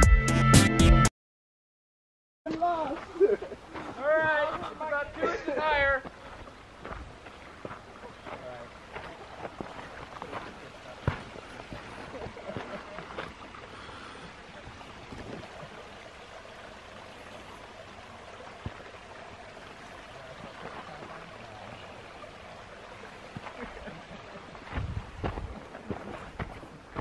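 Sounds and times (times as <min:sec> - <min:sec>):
footsteps on rocky dirt trail: 0:02.5 - 0:14.0, 0:24.5 - 0:27.0
steady outdoor hiss: 0:02.5 - 0:27.0
low bumps: 0:24.6 - 0:27.0.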